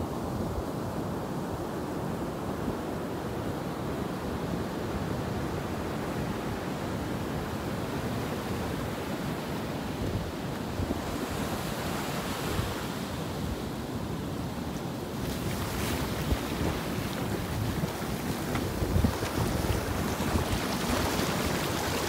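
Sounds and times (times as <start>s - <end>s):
wind rumbling on microphone: 0.0s - 22.0s
ocean surf washing up sand: 4.6s - 22.0s
hissing wash of water: 15.2s - 22.0s.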